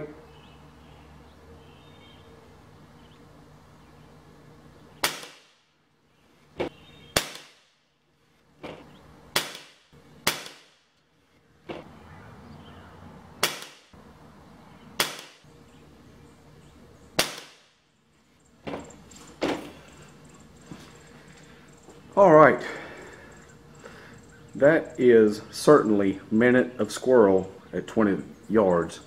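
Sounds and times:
air pistol shots: 5.0s - 5.6s, 7.1s - 7.7s, 9.3s - 10.8s, 13.4s - 13.9s, 15.0s - 15.5s, 17.2s - 17.7s.

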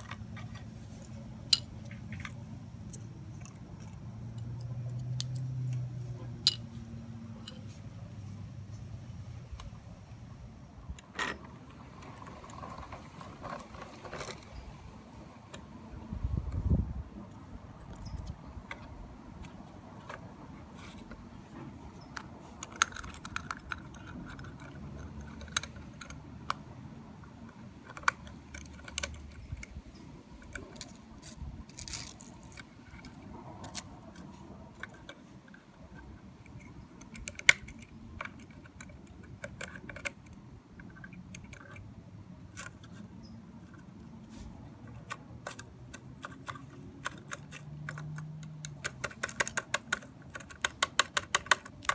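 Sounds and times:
toy parts clicking and rattling: 0.0s - 6.7s, 21.9s - 44.1s, 44.8s - 51.9s.

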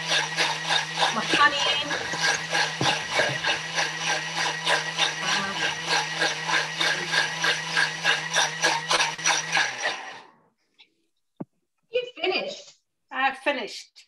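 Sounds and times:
food processor blending: 0.0s - 10.4s.

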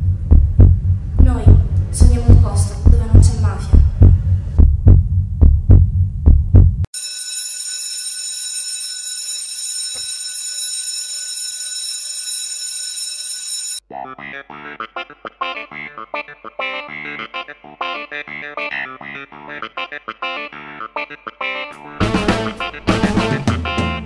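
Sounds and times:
heartbeat double thumps: 0.0s - 6.9s
steady high electronic tone: 6.9s - 13.8s.

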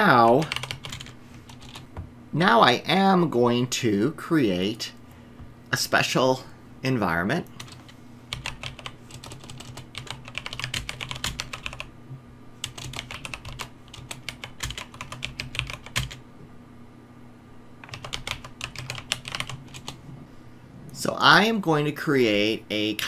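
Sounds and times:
computer keyboard typing: 0.0s - 1.9s, 7.6s - 11.9s, 12.6s - 16.2s, 17.8s - 20.0s.

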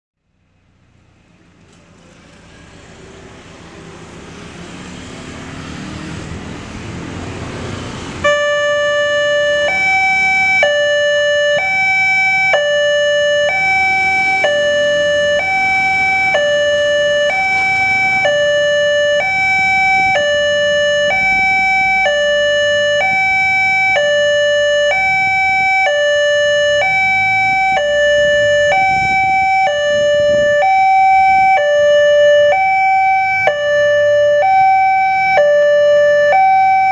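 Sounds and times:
motorbike and road noise: 0.2s - 36.9s
level crossing two-tone alarm: 8.2s - 36.9s.

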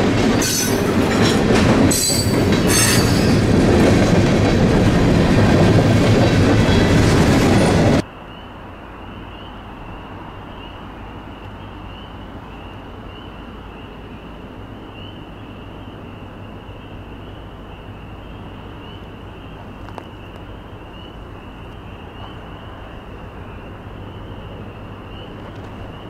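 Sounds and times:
peeping frogs chorus: 8.0s - 26.0s.

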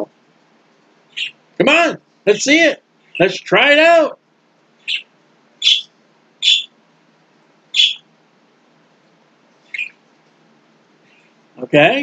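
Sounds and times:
small bird chirping: 1.1s - 1.4s, 3.0s - 3.4s, 4.8s - 6.8s, 7.7s - 8.1s, 9.6s - 10.1s, 11.0s - 11.4s.

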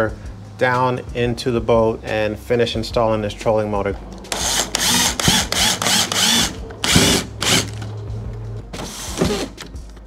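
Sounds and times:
cordless drill driving bolts: 4.3s - 7.8s.

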